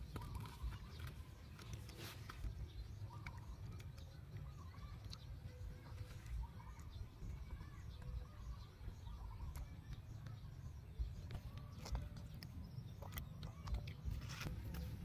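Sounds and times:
monkey biting and sucking fruit: 0:00.0 - 0:05.3, 0:11.2 - 0:15.0
faint bird chirps: 0:00.0 - 0:15.0.

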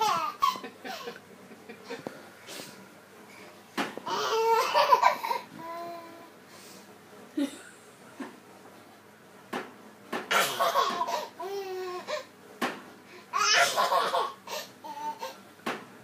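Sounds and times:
baby laughing: 0:00.0 - 0:01.2, 0:04.1 - 0:05.5, 0:10.3 - 0:12.3, 0:13.4 - 0:15.4.

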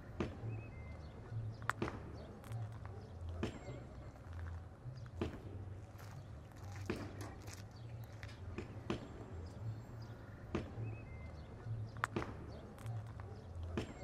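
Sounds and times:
faint chirp: 0:00.0 - 0:04.3, 0:09.4 - 0:14.0.

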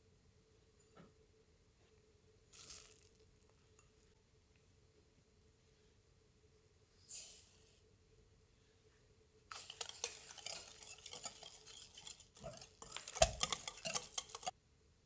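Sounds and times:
whisk clinking in glass bowl: 0:09.5 - 0:14.5.

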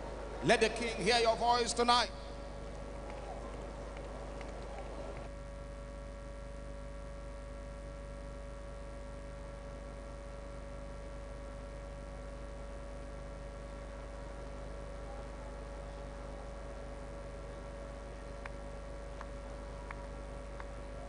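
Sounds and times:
constant hiss: 0:00.0 - 0:21.0
electrical mains hum: 0:00.0 - 0:21.0.

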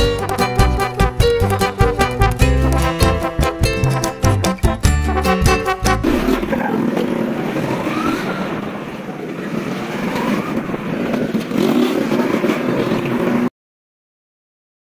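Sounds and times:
music: 0:00.0 - 0:06.5.

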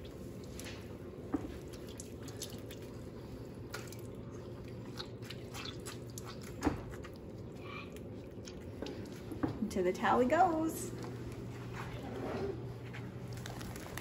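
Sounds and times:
water dripping and squishing: 0:00.0 - 0:09.7, 0:13.2 - 0:14.0
low steady hum: 0:00.0 - 0:14.0.

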